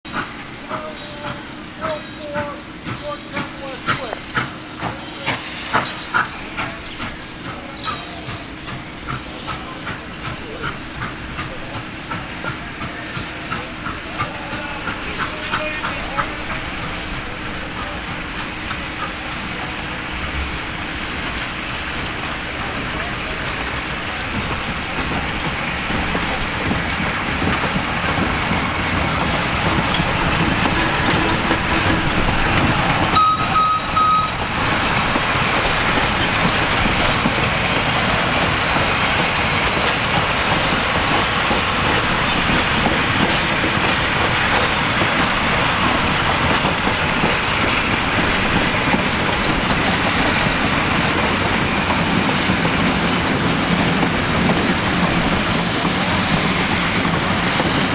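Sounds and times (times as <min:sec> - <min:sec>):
train wheels rumbling on track: 0:00.0 - 0:57.9
short high beeps: 0:33.2 - 0:34.4.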